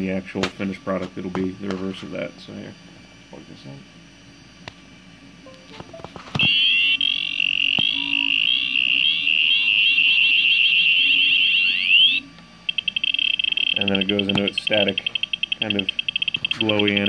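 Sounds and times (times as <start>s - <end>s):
shrill warbling buzzer beep: 5.5s - 17.0s
fast-pulsing beep: 6.4s - 17.0s.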